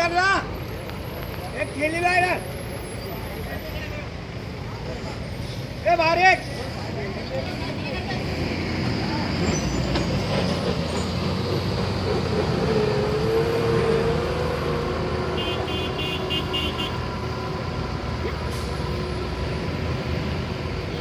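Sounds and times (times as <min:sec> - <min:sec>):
vehicle engines rumbling: 0:00.0 - 0:21.0.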